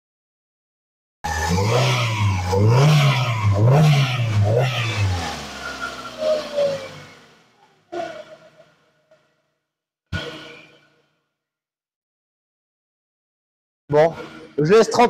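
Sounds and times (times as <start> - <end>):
car engine revving: 1.3 - 9.2, 10.2 - 10.9, 13.9 - 15.0.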